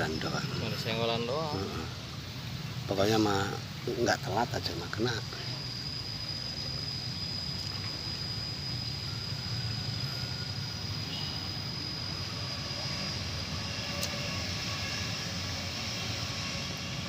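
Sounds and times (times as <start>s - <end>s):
high-pitched whine: 0.0s - 17.0s.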